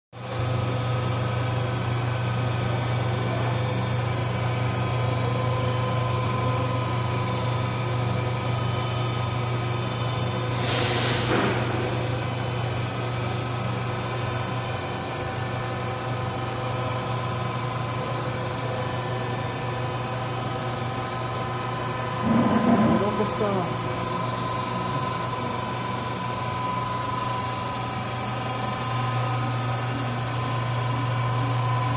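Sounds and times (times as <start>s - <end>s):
milling machine humming and whining: 0.2s - 31.9s
short hiss: 10.6s - 11.3s.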